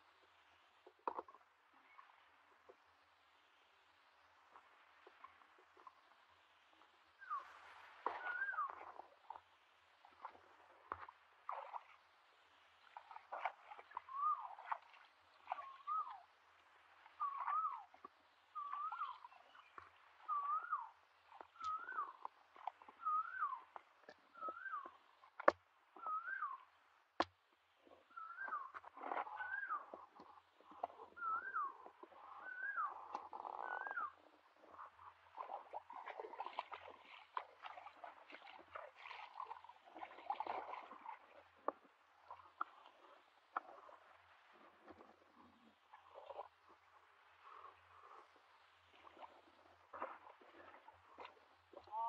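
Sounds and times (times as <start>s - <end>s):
water sloshing and splashing: 6.8s - 52.0s
bird whistled call: 7.2s - 7.5s, 8.2s - 8.7s, 14.1s - 14.4s, 15.6s - 16.2s, 17.2s - 17.8s, 18.6s - 22.3s, 23.0s - 23.7s, 24.3s - 25.0s, 26.0s - 26.6s, 28.1s - 28.7s, 29.3s - 30.0s, 31.2s - 34.2s.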